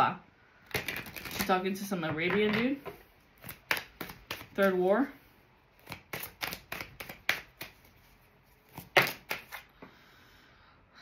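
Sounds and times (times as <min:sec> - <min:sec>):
cards tapping and snapping: 0:00.7 - 0:01.5, 0:03.4 - 0:04.7, 0:05.8 - 0:08.1, 0:08.7 - 0:09.7.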